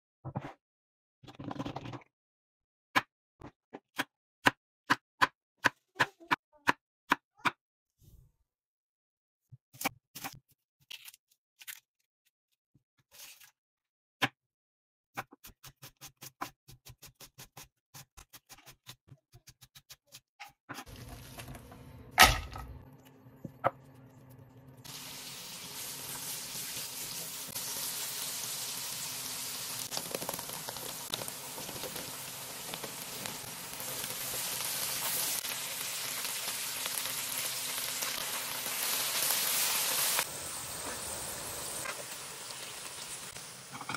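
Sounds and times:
vegetables sizzling in oil: 0:24.8 - 0:43.9.

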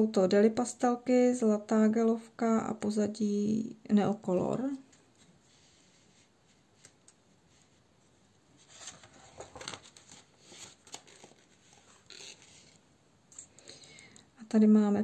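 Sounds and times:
light clicks of page turning: 0:06.8 - 0:07.7
paper rustling and crinkling: 0:08.6 - 0:12.8.

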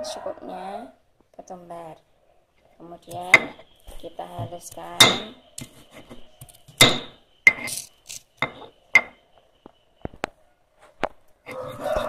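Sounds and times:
pestle knocking on stone mortar: 0:04.4 - 0:05.7, 0:06.8 - 0:09.1.

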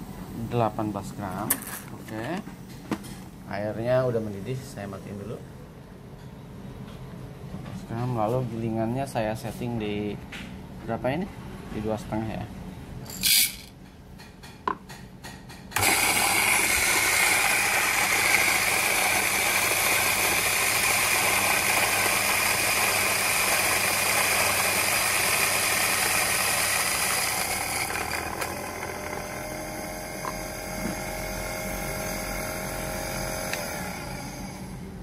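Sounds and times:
electric coffee grinder grinding beans: 0:13.2 - 0:13.7, 0:15.8 - 0:34.8.

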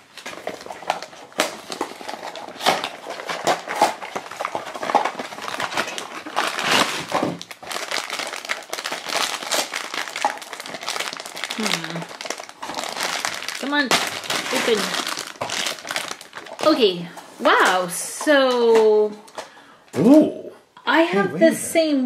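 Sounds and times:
cardboard box crinkling and rustling: 0:00.0 - 0:16.9.

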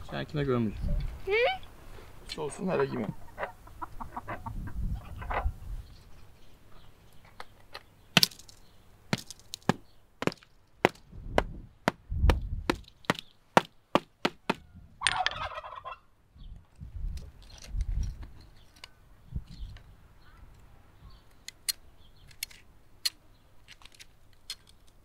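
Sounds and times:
turkey gobbling: 0:02.5 - 0:05.6, 0:14.4 - 0:16.1
hammer tapping salt crust: 0:09.1 - 0:14.6.

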